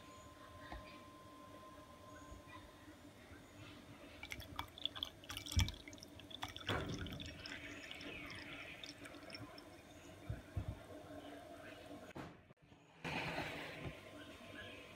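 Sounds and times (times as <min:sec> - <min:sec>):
milk pouring into a glass: 0:04.2 - 0:10.2
liquid dripping and trickling: 0:04.2 - 0:10.5.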